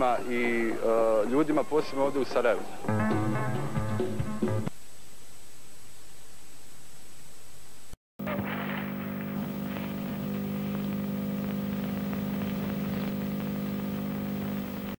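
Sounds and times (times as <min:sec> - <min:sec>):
faint crackles: 0:08.2 - 0:15.0
steady low hum: 0:08.2 - 0:15.0.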